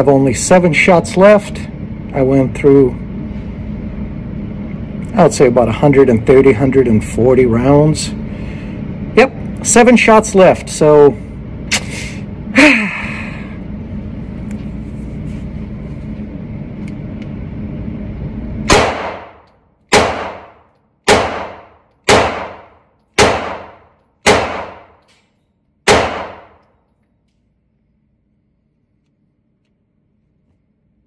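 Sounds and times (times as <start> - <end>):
steady low rumble: 0.0 - 25.1
pistol shots echoing indoors: 18.6 - 27.0.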